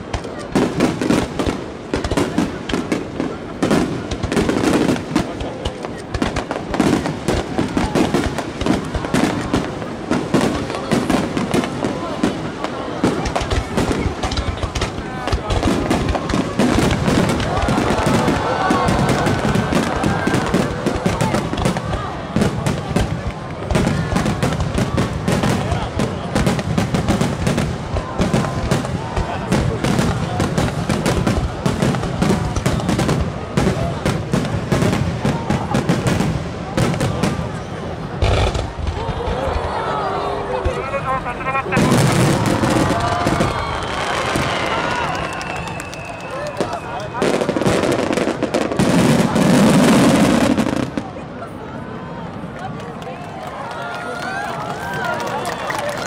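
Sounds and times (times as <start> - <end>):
firework shells bursting: 38.2 - 39.3.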